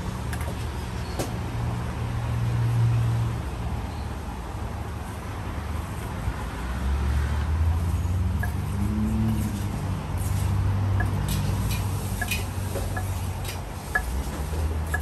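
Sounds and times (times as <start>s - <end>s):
street noise: 0.0s - 15.0s
vehicle engine hum: 4.6s - 15.0s.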